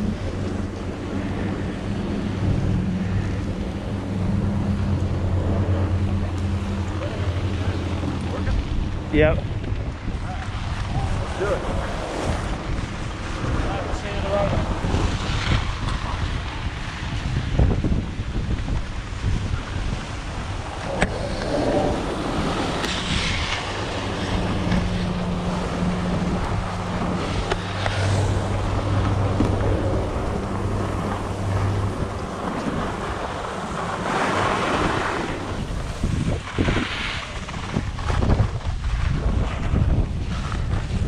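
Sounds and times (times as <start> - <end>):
low steady hum: 0.0 - 36.5
wind buffeting microphone: 0.0 - 41.0
skis scraping on snow: 10.1 - 41.0.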